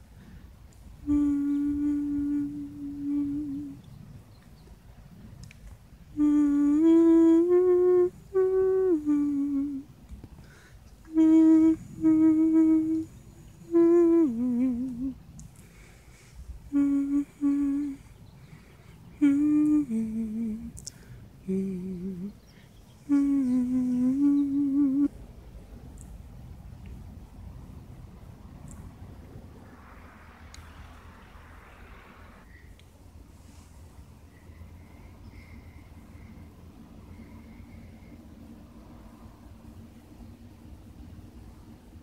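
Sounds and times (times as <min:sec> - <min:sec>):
person humming: 0:01.0 - 0:03.9, 0:06.1 - 0:10.0, 0:11.0 - 0:15.5, 0:16.6 - 0:18.2, 0:19.1 - 0:25.2.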